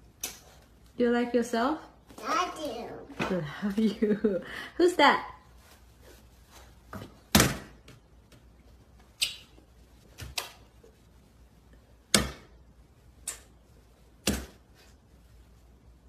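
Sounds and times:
hands slapping a mirrored door: 12.1 - 12.6.

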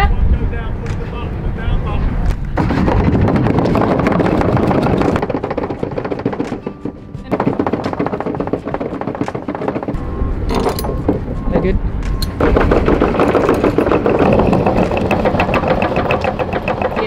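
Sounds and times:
electric anchor windlass: 0.7 - 17.0
anchor chain clattering: 3.6 - 17.0.

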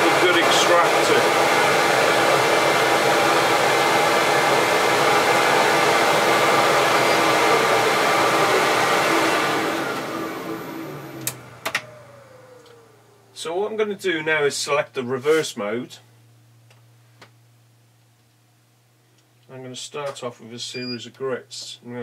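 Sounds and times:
dust extractor running: 0.0 - 14.0.

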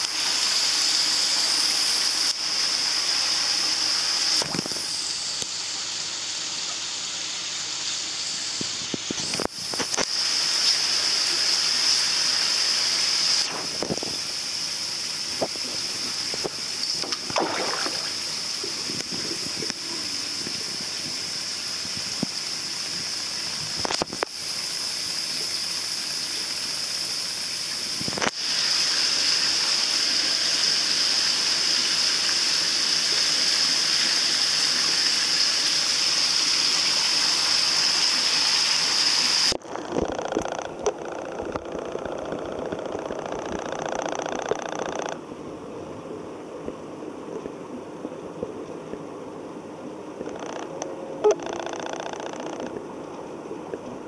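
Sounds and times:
running water: 0.0 - 54.0
water splashing: 15.3 - 21.2.

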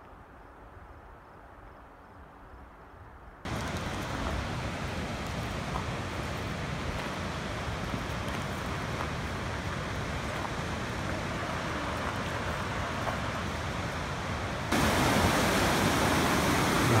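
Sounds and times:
river rapids rushing: 3.5 - 17.0.

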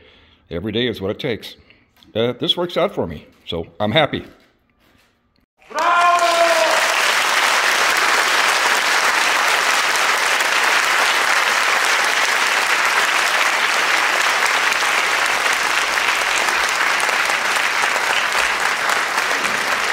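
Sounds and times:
crowd applause: 5.6 - 19.9.

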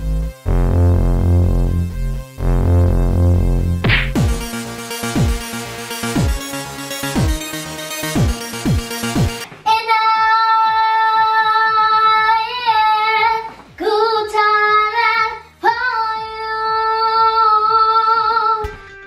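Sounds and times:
faint low thumps: 0.0 - 4.5.

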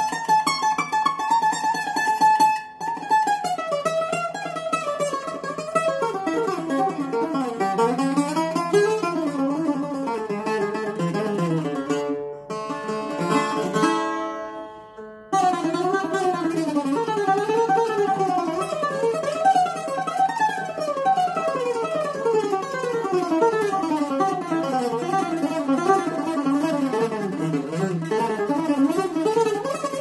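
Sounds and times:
bouzouki playing: 0.0 - 30.0.

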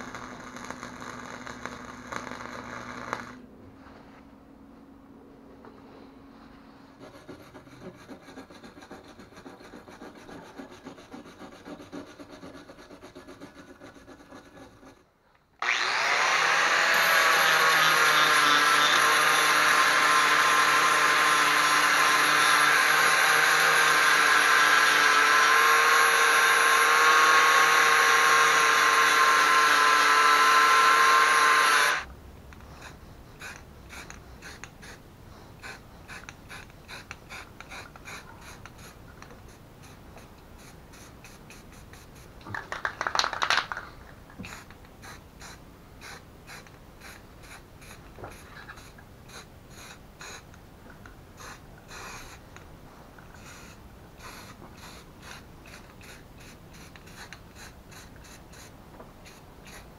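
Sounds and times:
power tool motor whining: 15.6 - 32.1.

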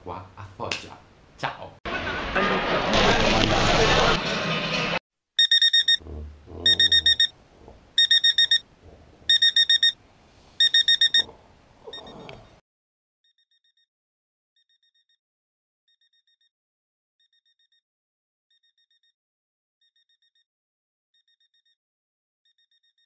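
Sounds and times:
alarm clock beeping: 5.4 - 6.0, 6.6 - 7.3, 8.0 - 8.6, 9.3 - 10.0, 10.6 - 11.3.

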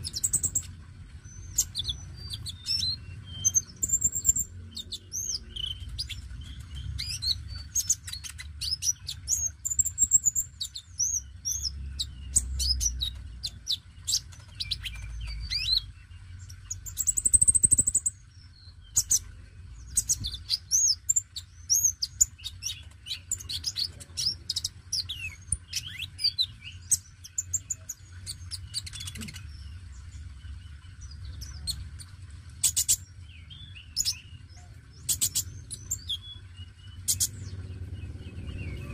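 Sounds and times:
bird chirping and trilling: 0.0 - 38.9.

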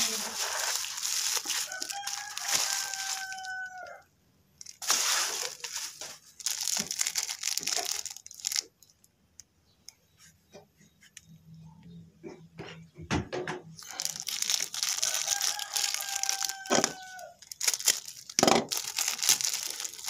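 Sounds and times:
plastic packaging crinkling: 0.0 - 4.0, 4.6 - 9.1, 13.8 - 20.0.

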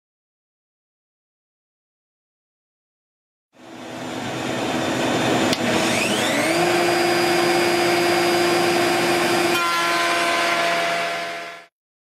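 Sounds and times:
shop vacuum running: 3.6 - 11.7
router motor whine: 3.8 - 11.7.

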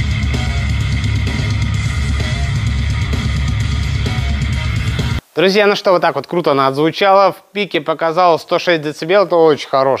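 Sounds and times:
rock music through a speaker: 0.0 - 5.2.

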